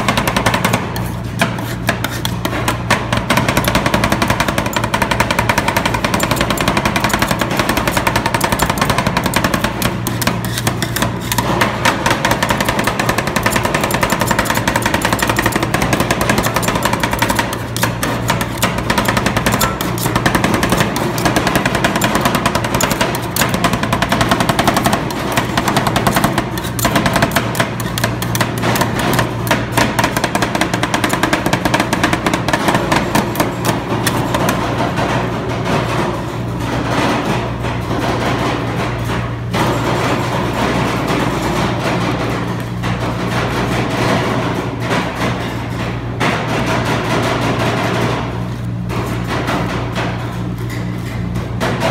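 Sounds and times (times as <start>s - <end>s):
steady hum: 0.0s - 35.6s
metal spatulas clacking on steel: 12.1s - 23.8s.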